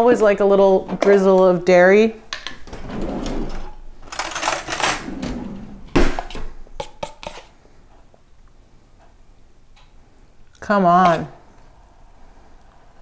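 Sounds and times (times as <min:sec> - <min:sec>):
metal spoon scraping plastic tub: 0:06.8 - 0:07.6.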